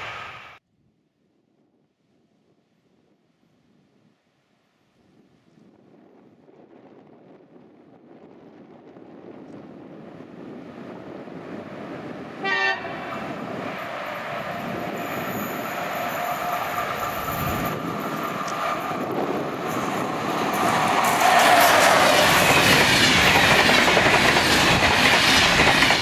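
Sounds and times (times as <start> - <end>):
train rumble and rail noise: 0.0 - 0.6, 5.1 - 26.0
train horn blast: 12.4 - 13.1.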